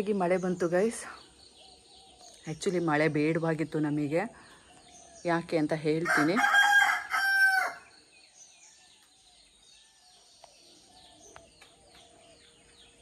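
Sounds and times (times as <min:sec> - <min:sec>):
faint small birds chirping: 0:00.0 - 0:13.0
rooster crowing: 0:06.0 - 0:07.9.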